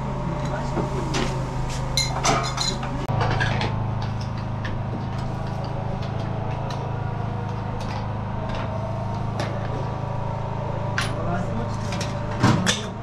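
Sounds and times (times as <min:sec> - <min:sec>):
low machine hum: 0:00.0 - 0:13.0
china and metal lids clinking: 0:02.0 - 0:03.6.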